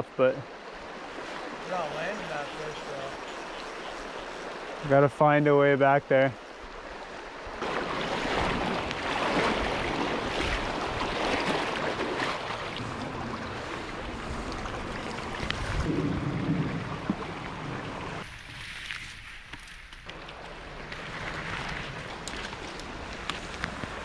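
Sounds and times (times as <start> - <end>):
water sloshing and splashing: 6.5 - 24.0.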